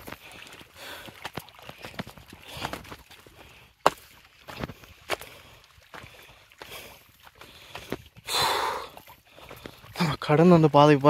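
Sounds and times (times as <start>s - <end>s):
footsteps and scuffs on rock: 1.1s - 8.2s.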